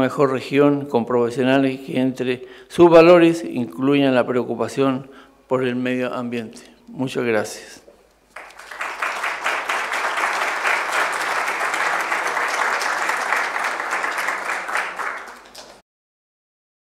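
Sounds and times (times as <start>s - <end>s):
audience applauding: 8.3s - 15.8s.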